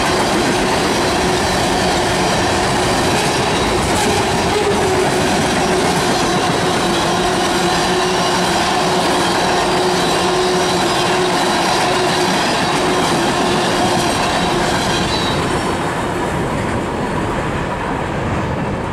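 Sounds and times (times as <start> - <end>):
train cars rolling on rails: 0.0 - 18.9
wheel squeal: 3.2 - 15.6.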